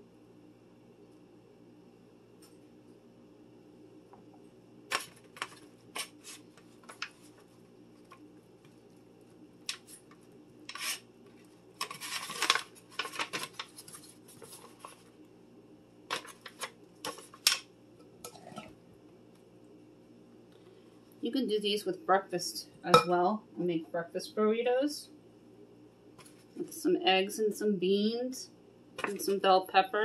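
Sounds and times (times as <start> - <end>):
faint steady hum: 0.0 - 30.0
foil pan crinkling: 4.9 - 8.9, 9.7 - 15.2, 16.1 - 17.6.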